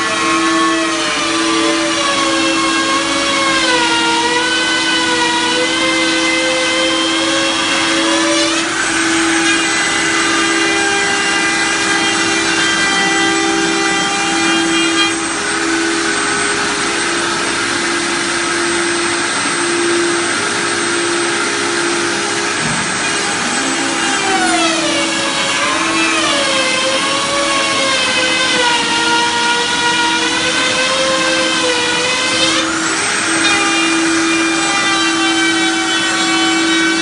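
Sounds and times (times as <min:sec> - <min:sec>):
router spindle whine: 0:00.0 - 0:37.0.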